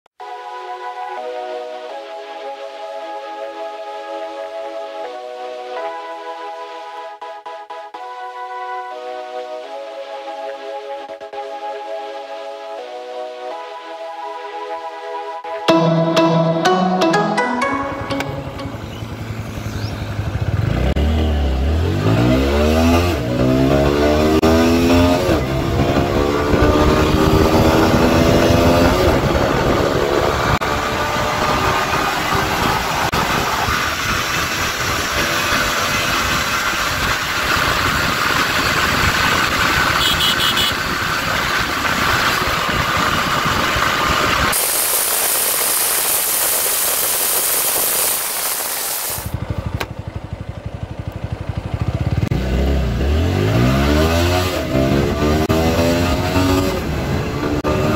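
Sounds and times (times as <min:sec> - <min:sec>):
motorcycle engine accelerating: 0:18.2 - 0:57.9
loud hiss: 0:44.2 - 0:49.3.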